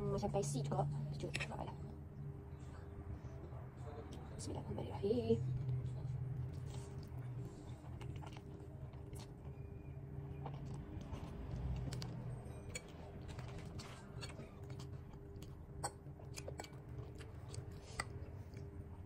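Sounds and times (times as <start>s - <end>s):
person chewing noodles: 5.6s - 19.0s.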